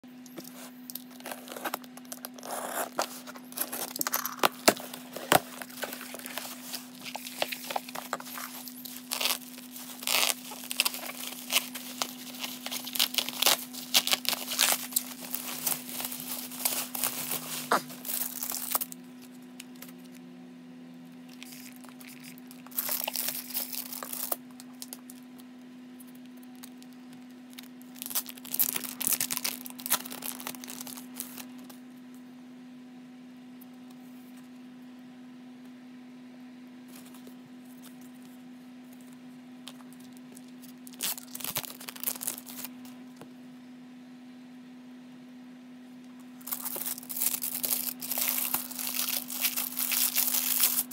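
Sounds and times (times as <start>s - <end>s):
steady low hum: 0.0s - 50.9s
packing tape tearing: 0.4s - 19.0s, 21.3s - 25.2s, 27.5s - 31.8s, 39.7s - 42.7s, 46.4s - 50.9s
bubble wrap crinkling: 0.4s - 20.2s, 21.2s - 31.8s, 39.6s - 42.9s, 46.4s - 50.9s.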